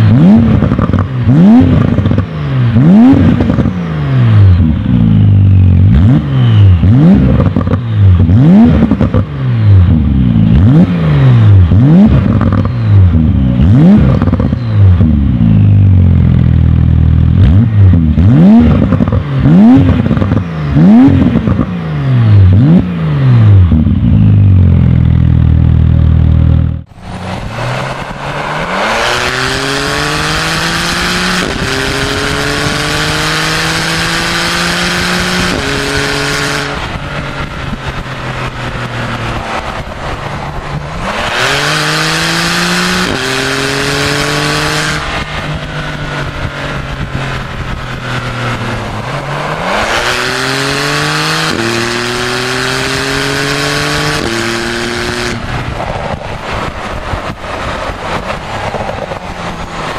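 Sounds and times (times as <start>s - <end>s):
car exhaust accelerating hard: 0.0s - 59.9s.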